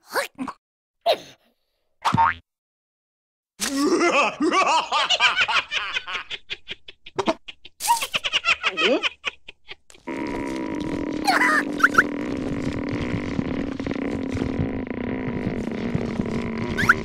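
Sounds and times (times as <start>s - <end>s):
cartoon voice laughing: 7.2s - 9.3s.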